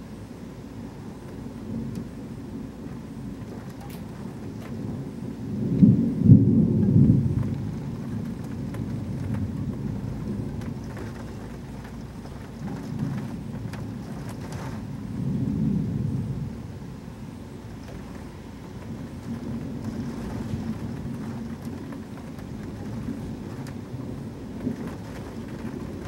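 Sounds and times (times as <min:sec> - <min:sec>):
heavy rain falling: 0:00.0 - 0:26.0
thunder rumbling: 0:00.0 - 0:26.0.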